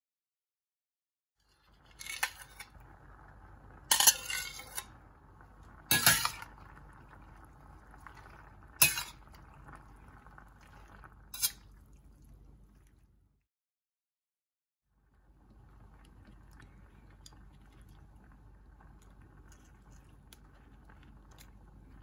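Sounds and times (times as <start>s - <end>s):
metal spatula scraping a pan: 1.6s - 2.7s, 3.9s - 5.0s, 5.9s - 6.5s, 8.8s - 9.2s, 11.3s - 11.6s.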